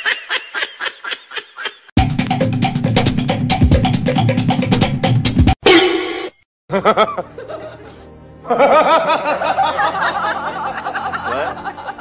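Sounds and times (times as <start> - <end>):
background music: 6.7 - 12.0.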